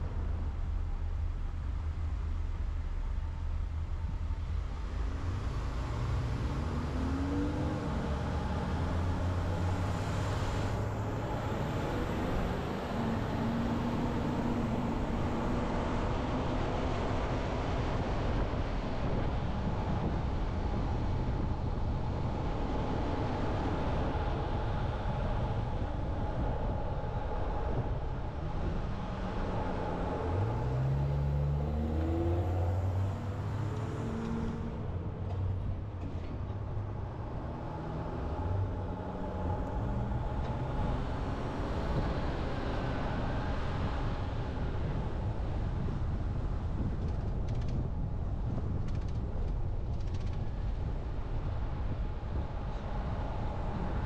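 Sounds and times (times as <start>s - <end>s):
car engine and road noise: 0.0s - 54.0s
engine speeding up: 4.8s - 19.2s, 21.6s - 47.8s.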